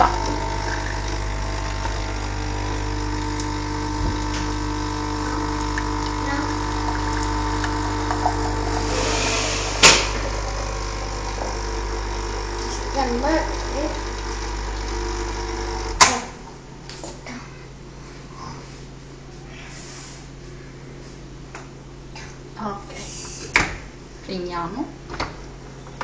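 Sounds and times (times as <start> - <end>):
capsule machine pump humming: 0.0 - 18.9
hiss: 8.7 - 10.7.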